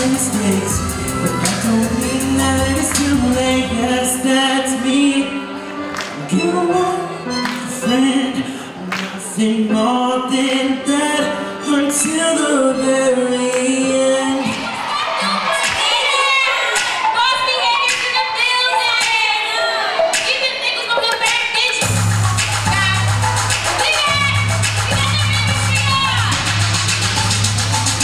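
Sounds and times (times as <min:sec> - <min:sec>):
deep bass line: 0:00.0 - 0:04.2, 0:21.8 - 0:28.0
man singing into microphone: 0:00.0 - 0:14.6
instrumental music: 0:00.0 - 0:14.9.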